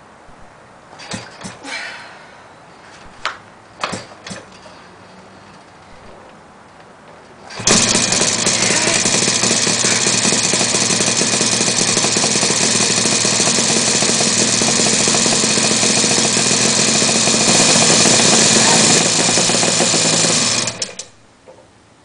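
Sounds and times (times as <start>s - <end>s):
motorcycle engine kick starting and running: 7.5s - 21.2s.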